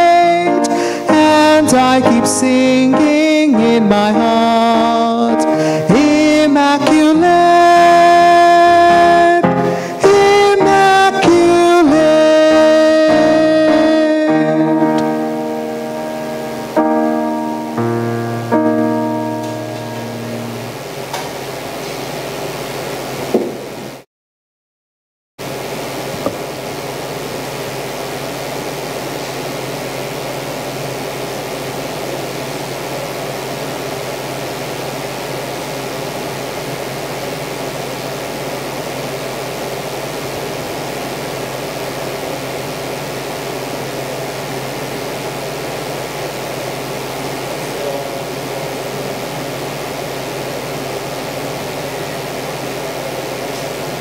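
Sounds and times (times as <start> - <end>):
air conditioning noise: 0.0 - 24.0, 25.4 - 54.0.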